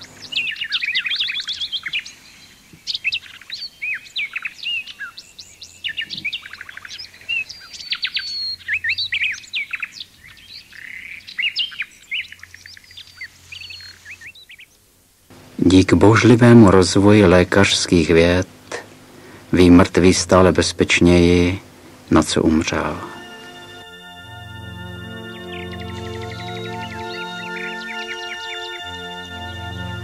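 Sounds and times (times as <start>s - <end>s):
songbirds singing: 0.0s - 14.9s, 22.3s - 30.0s.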